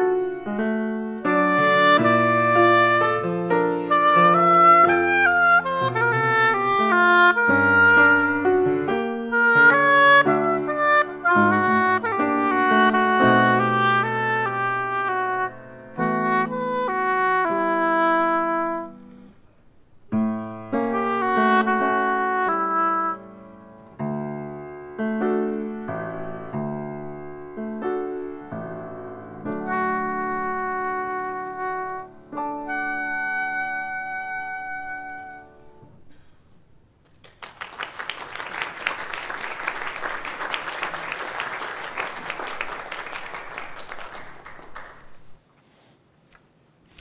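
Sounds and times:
piano accompaniment: 0.0 - 19.4, 20.0 - 36.3
oboe: 1.2 - 19.4, 20.2 - 24.2, 27.3 - 36.1
audience applauding: 37.0 - 45.4.

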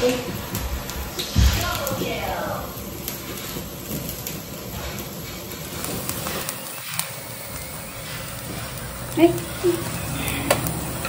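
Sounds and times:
gas burner flame hissing: 0.0 - 11.0
metal tongs clicking on grill: 8.4 - 11.0.

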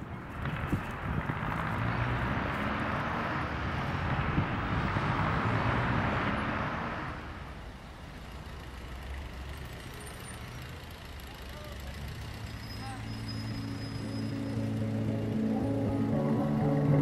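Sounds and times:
distant traffic rumble: 0.0 - 17.0
vehicle passing with rushing sound: 0.1 - 7.7, 13.2 - 17.0.

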